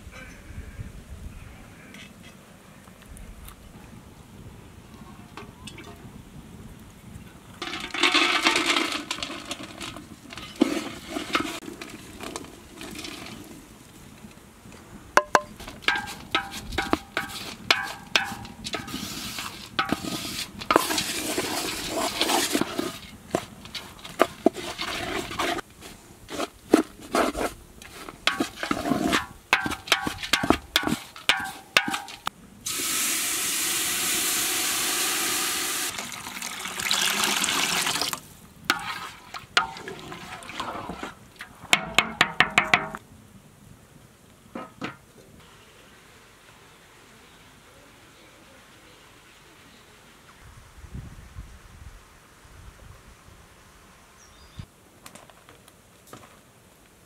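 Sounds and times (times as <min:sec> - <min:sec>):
metal pot lid clattering: 0:07.6 - 0:11.6, 0:15.2 - 0:25.6, 0:28.3 - 0:32.3
wooden spatula scraping in pot: 0:07.6 - 0:13.7, 0:15.5 - 0:32.3, 0:38.7 - 0:41.2
metal pot ringing: 0:15.2 - 0:19.0, 0:29.6 - 0:32.2
pouring rush: 0:15.2 - 0:26.5, 0:27.1 - 0:41.4.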